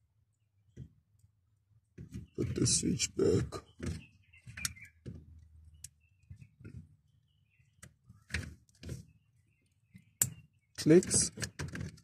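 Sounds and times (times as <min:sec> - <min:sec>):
plastic parts clicking and rattling: 0:10.8 - 0:12.0.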